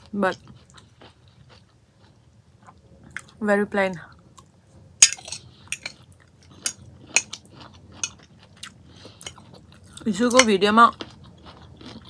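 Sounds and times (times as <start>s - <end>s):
fork clinking against glass: 5.0s - 6.0s.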